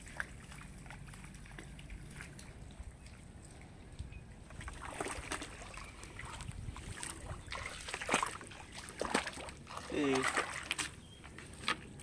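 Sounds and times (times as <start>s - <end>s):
wind rumbling on microphone: 0.0s - 8.8s
water splashing and sloshing: 0.0s - 12.0s.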